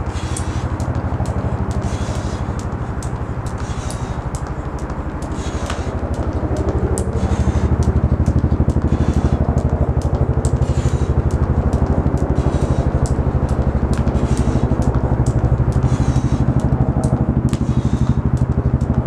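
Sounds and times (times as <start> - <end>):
jump rope clicking on stone: 0.0 - 19.0
pulsing motor-like drone: 0.0 - 19.0.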